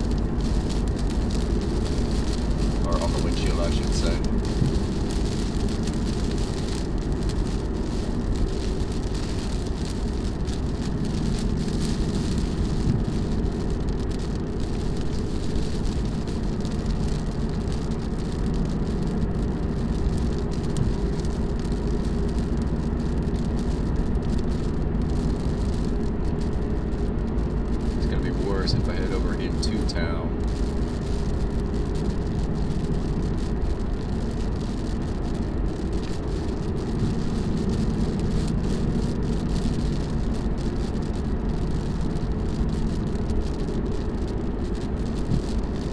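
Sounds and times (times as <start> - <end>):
car engine drone: 0.0 - 45.9
rain on windshield: 0.0 - 45.9
tyre hiss on wet road: 0.0 - 45.9.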